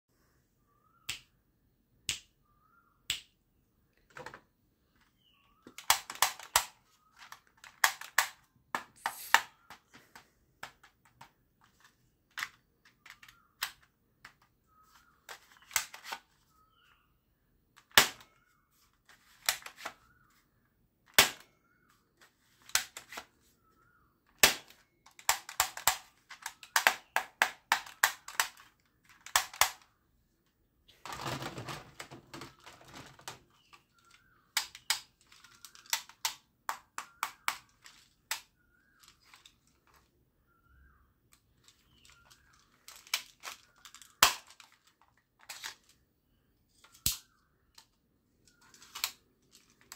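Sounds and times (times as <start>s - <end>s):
plastic clacking: 4.0s - 16.4s, 24.3s - 40.1s, 41.3s - 46.0s, 46.8s - 49.9s
plastic toy gun clicks: 5.7s - 9.8s, 24.4s - 29.9s, 34.6s - 39.4s, 41.9s - 45.9s, 46.8s - 47.9s.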